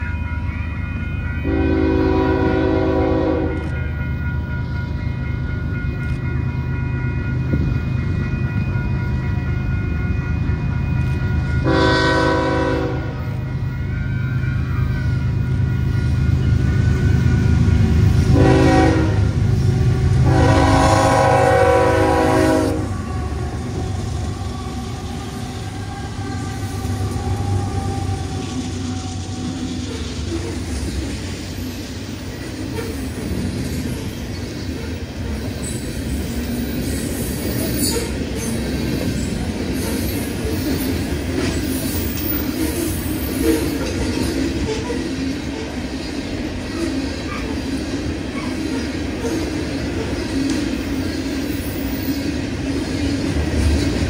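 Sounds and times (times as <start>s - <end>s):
locomotive air horn: 1.4s - 3.7s, 11.6s - 13.2s, 18.3s - 23.0s
train wheels clacking: 1.4s - 54.0s.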